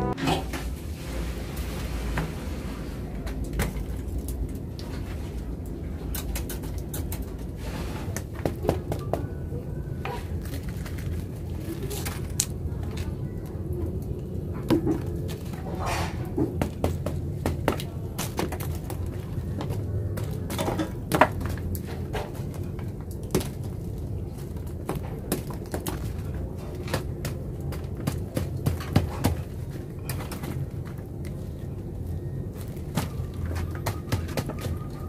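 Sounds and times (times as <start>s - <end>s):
low background hum: 0.0s - 1.6s, 2.7s - 35.0s.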